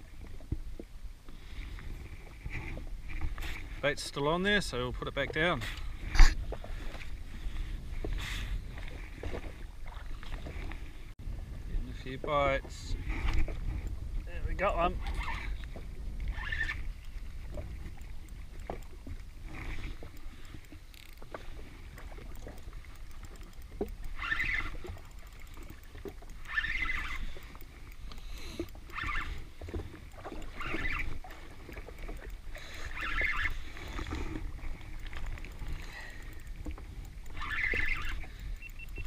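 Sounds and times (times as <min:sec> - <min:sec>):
waves slapping against hull: 0:00.0 - 0:39.0
wind rumble on microphone: 0:04.8 - 0:20.2
fishing reel ticking: 0:14.8 - 0:39.0.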